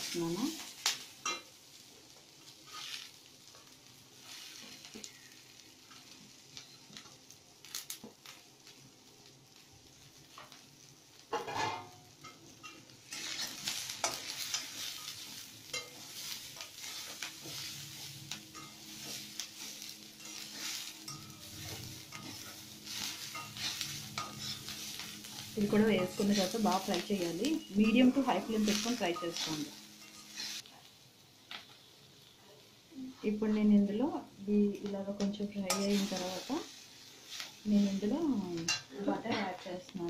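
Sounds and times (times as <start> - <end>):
vegetables sizzling in a pan: 0.0 - 40.0
steel spatula scraping pan: 2.6 - 3.2, 11.4 - 30.7, 35.7 - 36.6.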